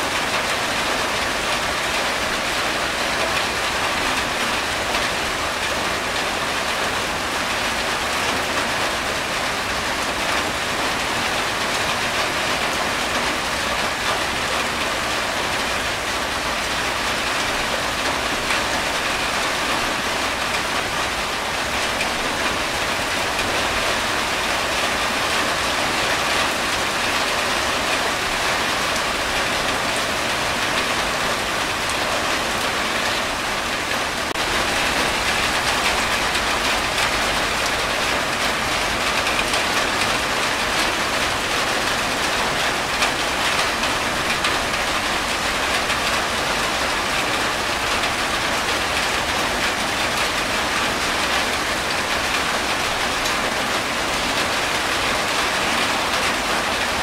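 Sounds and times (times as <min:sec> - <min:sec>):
rain on a tin roof: 0:00.0 - 0:57.0.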